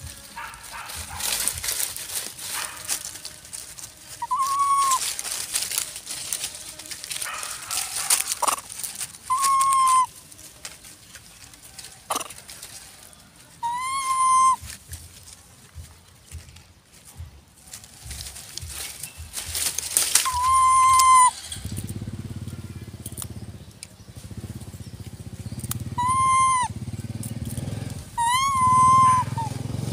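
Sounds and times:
dry leaves crackling: 0:00.0 - 0:29.9
macaque cooing: 0:04.2 - 0:05.2, 0:08.0 - 0:10.2, 0:12.1 - 0:12.4, 0:13.6 - 0:14.7, 0:20.2 - 0:21.8, 0:25.8 - 0:26.9, 0:27.9 - 0:29.7
short falling squeaks: 0:20.2 - 0:21.8.

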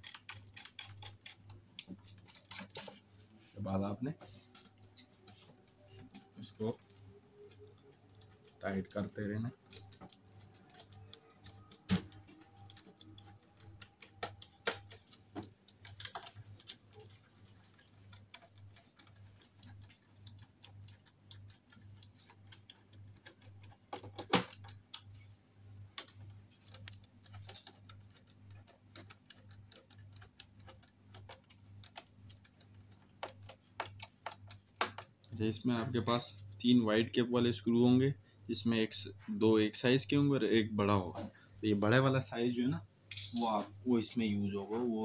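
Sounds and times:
screwdriver clicking in screw heads: 0:00.0 - 0:02.9, 0:07.3 - 0:25.1, 0:26.0 - 0:35.2.

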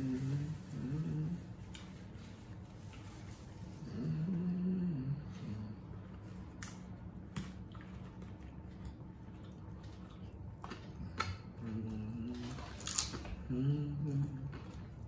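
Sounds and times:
person humming: 0:00.0 - 0:01.5, 0:03.9 - 0:05.8, 0:11.6 - 0:12.8, 0:13.4 - 0:14.6
tostadas crunching: 0:06.1 - 0:15.0.

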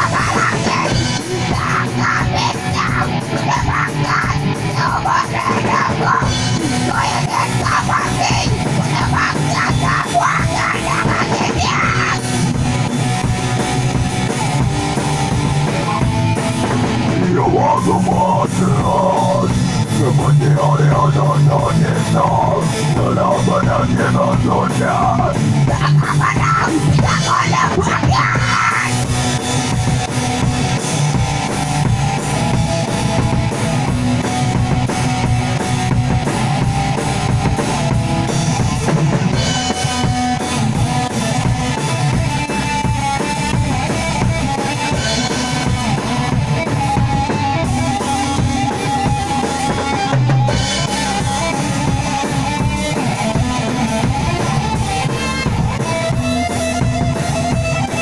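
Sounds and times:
person singing into microphone: 0:00.0 - 0:12.3, 0:17.2 - 0:29.0
drum kit: 0:00.0 - 0:58.0
electric guitars: 0:00.0 - 0:58.0.

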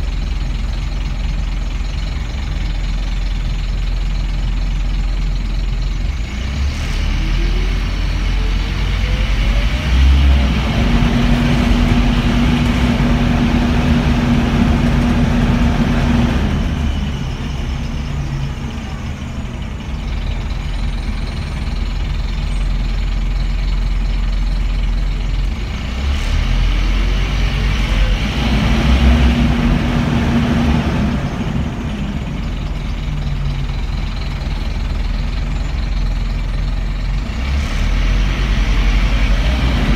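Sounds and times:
bus engine accelerating: 0:00.0 - 0:39.9
steady driveline whine: 0:08.9 - 0:22.3.

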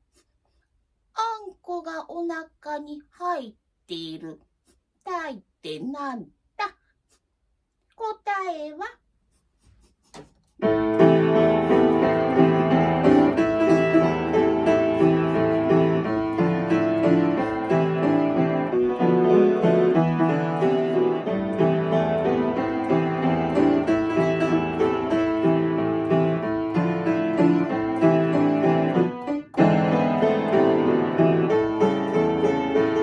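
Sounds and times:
solo piano: 0:10.6 - 0:33.0.

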